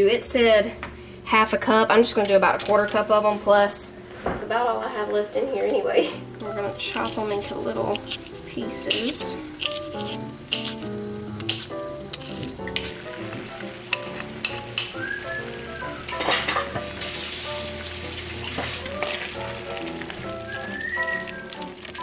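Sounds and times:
spoon stirring: 0:06.3 - 0:22.0
meat sizzling in a skillet: 0:06.5 - 0:22.0.

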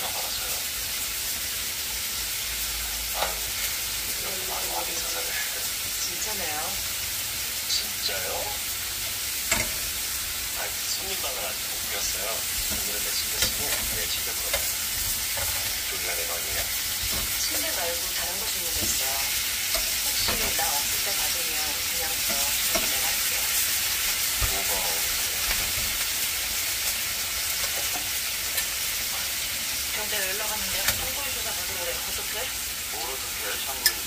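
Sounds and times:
meat sizzling in a grill pan: 0:00.0 - 0:34.0
metal tongs clicking on pan: 0:09.4 - 0:09.9, 0:12.6 - 0:15.8, 0:18.4 - 0:21.4, 0:22.2 - 0:23.6, 0:30.8 - 0:31.2, 0:33.8 - 0:34.0.

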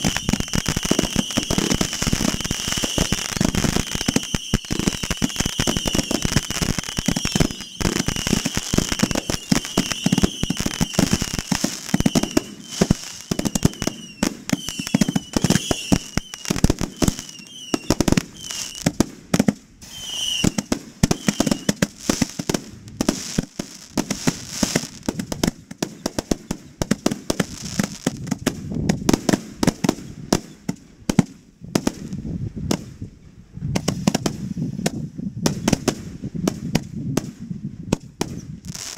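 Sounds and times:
high wavering firework whistles: 0:00.0 - 0:18.9, 0:19.8 - 0:22.3
fireworks bangs and crackles: 0:00.0 - 0:38.9.

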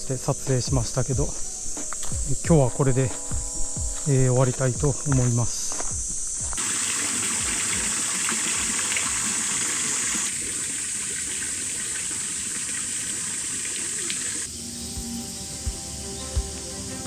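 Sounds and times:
high insect buzz: 0:00.0 - 0:06.6, 0:13.8 - 0:17.0
running water rushing: 0:06.6 - 0:14.5.

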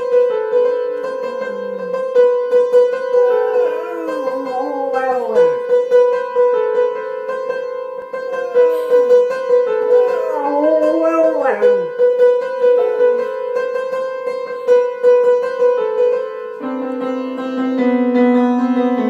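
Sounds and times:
dog howling: 0:01.0 - 0:05.8, 0:08.1 - 0:12.1.

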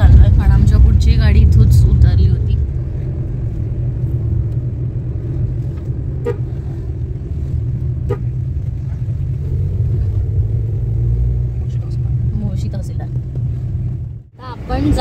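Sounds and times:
car rumbling on gravel road: 0:00.0 - 0:15.0.

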